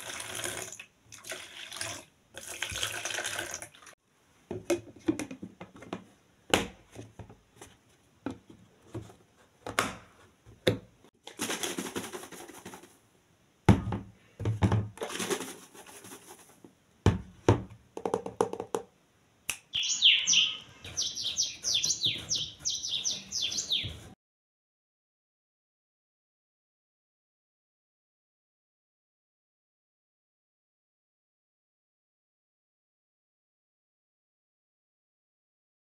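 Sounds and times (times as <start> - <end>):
plastic containers knocking and clicking: 4.5 - 12.9, 13.7 - 16.2, 17.0 - 18.9
rapid high chirping: 19.7 - 24.0.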